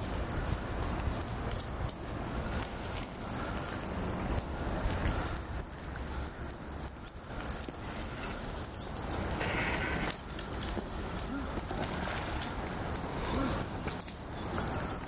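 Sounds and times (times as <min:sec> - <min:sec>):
animals rustling on dry grass: 0:00.0 - 0:15.0.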